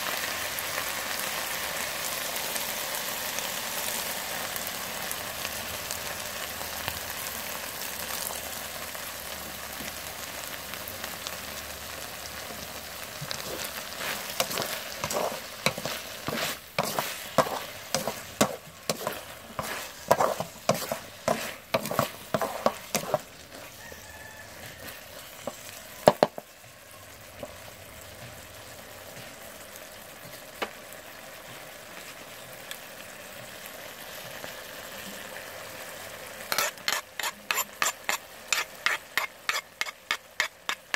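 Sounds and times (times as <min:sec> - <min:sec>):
food sizzling in a wok: 0:00.0 - 0:40.9
wooden spatula scraping a wok: 0:13.1 - 0:26.5, 0:36.5 - 0:40.9
spatula knocking on pan: 0:14.4 - 0:23.2, 0:25.4 - 0:26.4.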